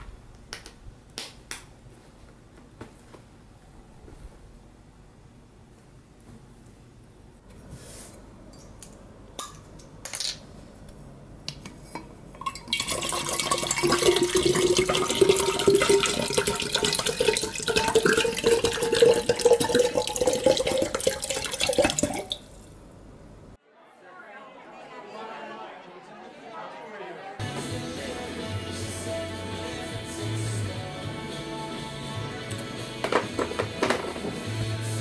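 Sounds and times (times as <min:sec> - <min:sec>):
water pouring into a glass: 0:12.4 - 0:22.5.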